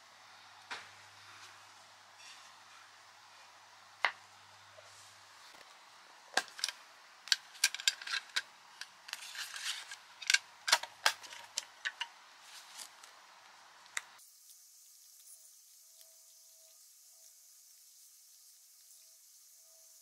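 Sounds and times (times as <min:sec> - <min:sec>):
paper rustling: 0:09.1 - 0:11.6, 0:12.4 - 0:13.2.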